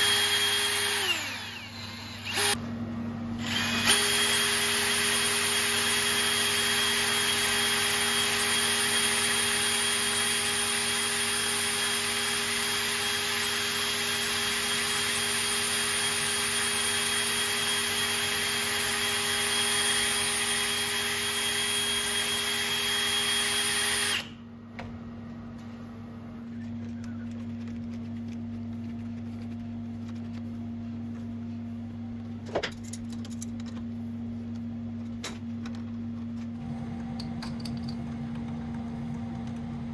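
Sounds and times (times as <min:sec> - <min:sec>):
cordless drill running: 0:00.0 - 0:02.6, 0:03.4 - 0:24.4.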